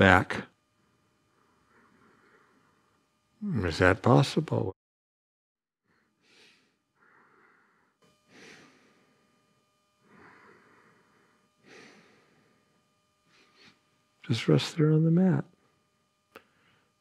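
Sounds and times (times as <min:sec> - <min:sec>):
man breathing slowly: 0:00.9 - 0:03.0, 0:05.8 - 0:09.4, 0:10.0 - 0:13.9, 0:16.4 - 0:17.0.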